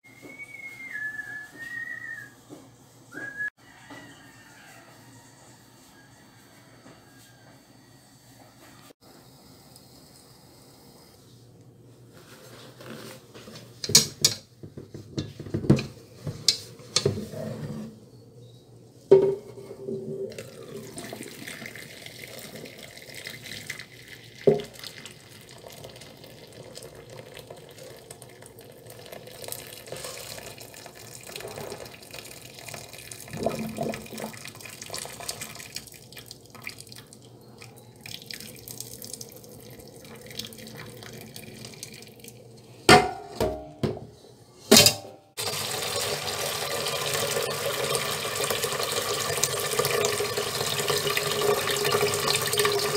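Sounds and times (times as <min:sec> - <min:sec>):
metal pot knocking on sink: 0:19.1 - 0:19.6, 0:42.9 - 0:44.1
water pouring into sink: 0:20.3 - 0:37.3, 0:38.0 - 0:42.5, 0:45.4 - 0:52.9.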